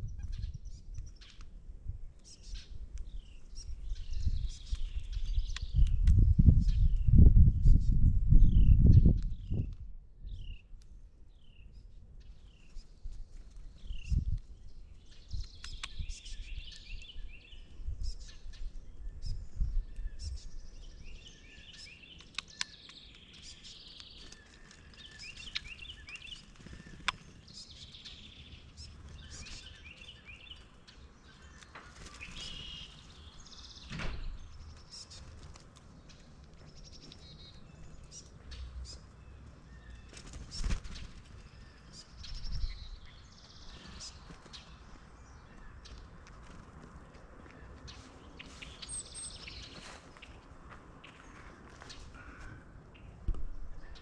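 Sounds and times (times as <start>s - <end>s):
songbirds chirping and singing: 0.0s - 54.0s
sharp clicks: 22.2s - 23.3s.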